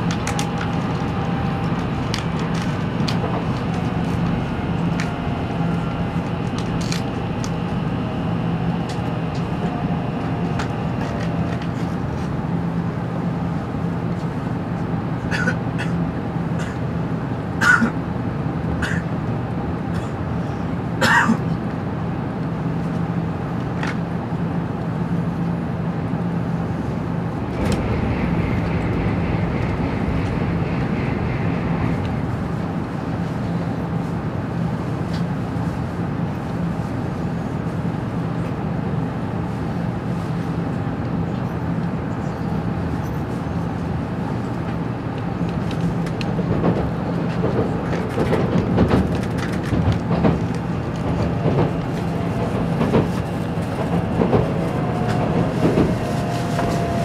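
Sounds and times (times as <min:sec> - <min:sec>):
low hum: 0:00.0 - 0:15.0, 0:26.2 - 0:34.8
wheels rumbling on rail: 0:00.0 - 0:57.0
high whine: 0:27.1 - 0:34.3
air rushing past: 0:27.3 - 0:34.1.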